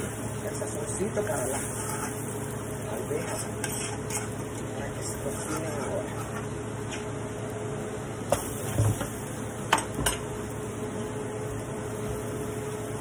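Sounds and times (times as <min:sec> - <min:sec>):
steady hum: 0:00.0 - 0:13.0
metal spoon stirring in pot: 0:01.2 - 0:06.5.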